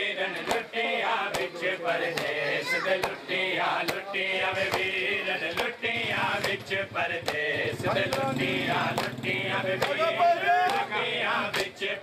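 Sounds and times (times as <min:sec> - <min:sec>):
men chanting: 0:00.0 - 0:12.0
hands slapping chests: 0:02.1 - 0:02.4, 0:03.0 - 0:03.2.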